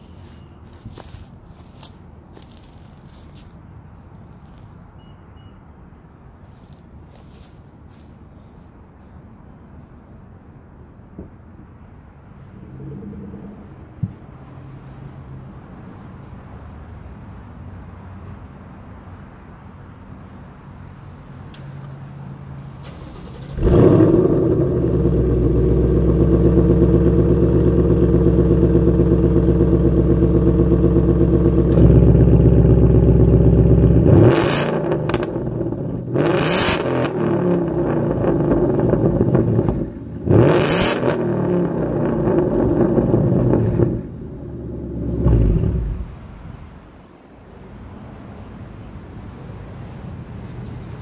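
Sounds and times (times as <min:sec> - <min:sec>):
car engine revving and idling: 0:22.9 - 0:46.8.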